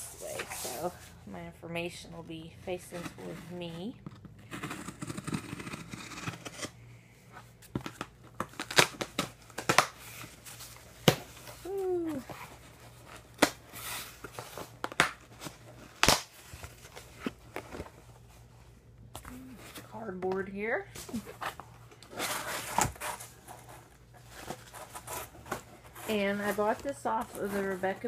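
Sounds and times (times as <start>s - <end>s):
tape and cardboard cracking: 4.0s - 6.7s, 7.7s - 10.4s, 13.2s - 17.9s.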